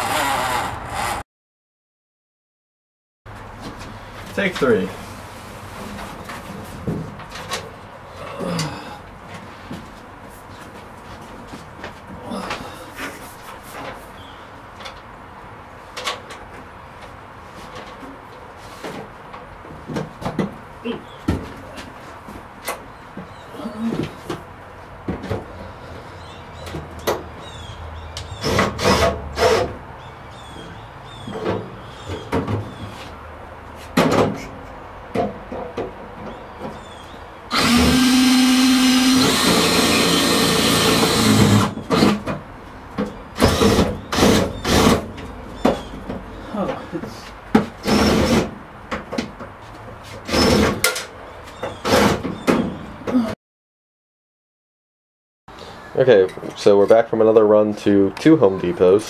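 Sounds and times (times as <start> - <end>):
power drill driving screws: 0.0 - 1.2, 37.5 - 42.2, 43.4 - 45.0, 47.8 - 48.5, 50.3 - 50.8
knocks and scrapes on metal cabinet: 33.8 - 36.8.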